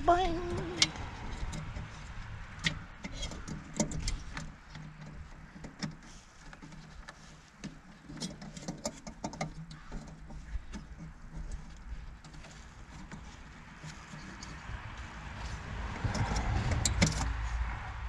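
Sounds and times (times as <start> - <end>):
low steady hum: 0.0 - 3.2
small clicks and rattles of parts: 0.0 - 17.5.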